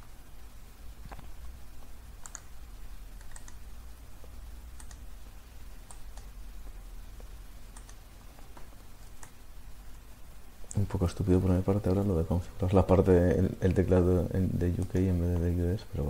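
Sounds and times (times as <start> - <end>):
low steady hum: 0.0 - 16.0
computer mouse clicks: 1.0 - 2.6, 3.2 - 3.6, 4.7 - 5.1, 5.8 - 6.3, 7.7 - 9.4.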